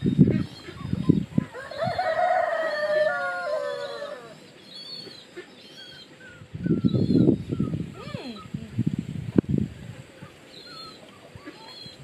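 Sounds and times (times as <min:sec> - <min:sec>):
rooster crowing: 0:01.5 - 0:04.4.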